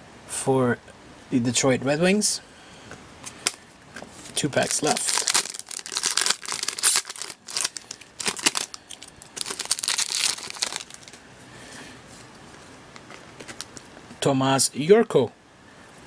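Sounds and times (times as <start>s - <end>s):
card pack wrapper tearing and crinkling: 4.6s - 11.2s, 13.0s - 13.9s.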